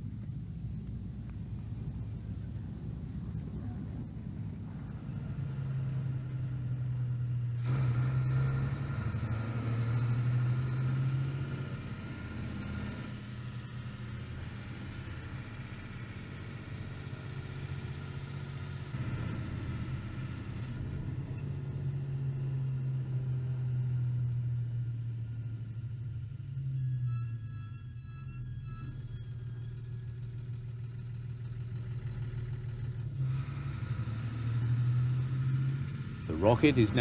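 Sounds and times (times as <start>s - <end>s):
lorry engine humming: 0.0s - 37.0s.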